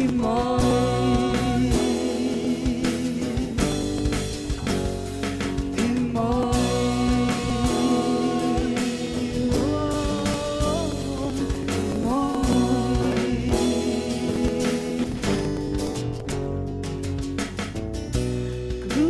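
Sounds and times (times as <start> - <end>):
person singing long notes: 0.0 - 4.3, 5.8 - 15.6
live band playing: 0.0 - 19.0.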